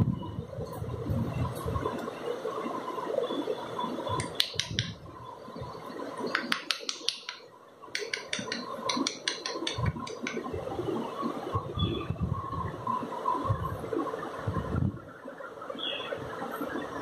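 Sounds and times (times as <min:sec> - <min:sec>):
clicks and taps from bird cage: 0:04.1 - 0:05.0, 0:06.2 - 0:10.5.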